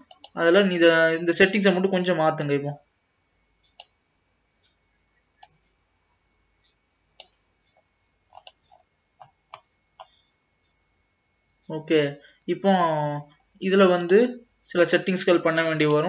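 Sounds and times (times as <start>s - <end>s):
computer mouse clicking: 0.0s - 0.4s, 3.6s - 4.0s, 5.4s - 5.8s, 6.6s - 10.2s, 13.9s - 14.2s.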